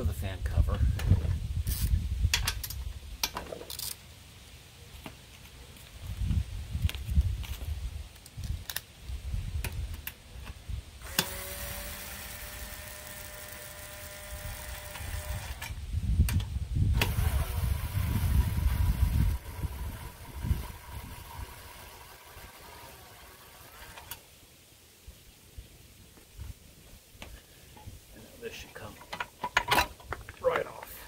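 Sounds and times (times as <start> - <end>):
cordless power driver whirring: 11.0 - 15.8, 16.9 - 24.2.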